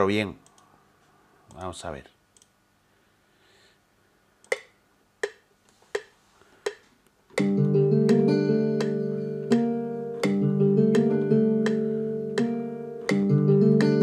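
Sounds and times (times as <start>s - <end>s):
metronome clicks: 4.4s - 14.0s
guitar chords: 7.4s - 14.0s.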